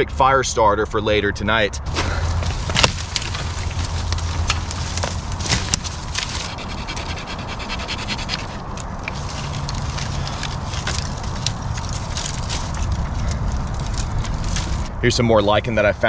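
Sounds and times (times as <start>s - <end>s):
dry twigs cracking: 1.9s - 15.0s
dog panting: 6.4s - 9.2s.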